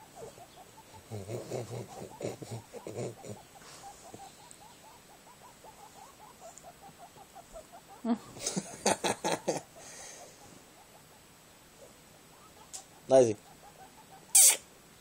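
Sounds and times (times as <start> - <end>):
small pets grunting: 1.0 - 4.3.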